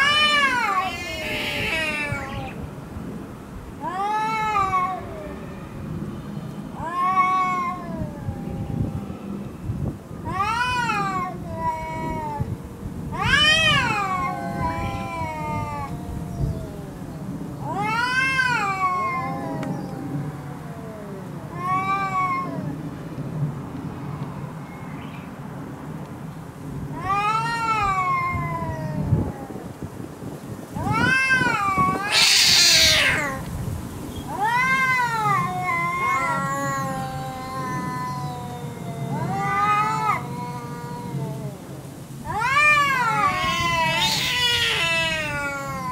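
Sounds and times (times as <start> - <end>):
cat growling low: 0.0 - 2.6, 6.8 - 9.6, 10.2 - 22.8, 26.9 - 29.8, 30.8 - 33.5, 34.3 - 45.9
cat hissing: 0.0 - 2.6, 30.8 - 45.9
cats yowling: 0.0 - 2.7, 3.8 - 5.9, 6.8 - 22.8, 26.9 - 29.8, 30.8 - 45.9.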